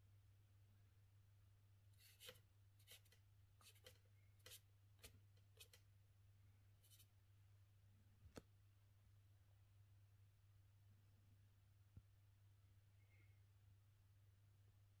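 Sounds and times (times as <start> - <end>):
charcoal strokes on paper: 2.0 - 5.8, 6.8 - 7.1.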